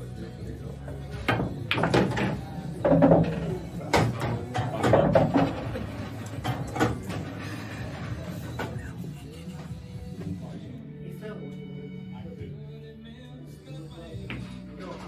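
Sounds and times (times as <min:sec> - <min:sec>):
pool balls clicking together: 0:01.3 - 0:07.3.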